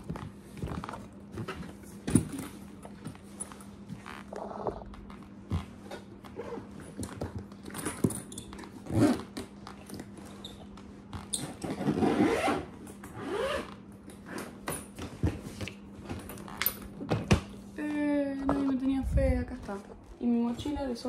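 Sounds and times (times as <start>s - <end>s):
zipper being pulled shut: 8.8s - 9.3s, 11.4s - 14.5s.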